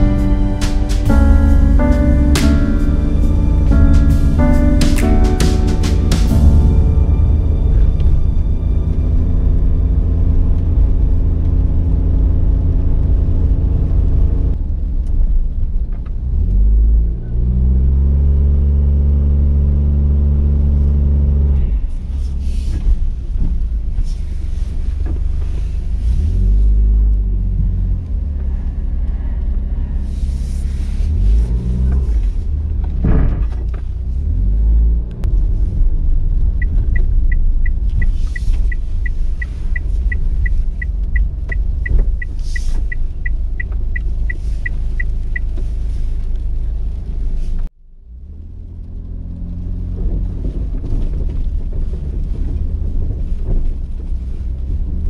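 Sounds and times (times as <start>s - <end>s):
background music: 0.0s - 10.8s
van engine revving: 0.0s - 55.0s
turn signal relay ticking: 36.6s - 45.6s.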